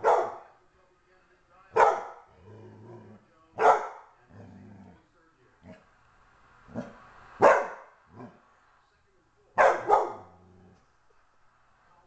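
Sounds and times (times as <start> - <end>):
dog barking: 0.0 - 0.5, 1.8 - 2.3, 3.6 - 4.1, 6.8 - 8.4, 9.6 - 10.4
dog growling: 2.3 - 3.3, 4.3 - 5.0, 10.1 - 10.8.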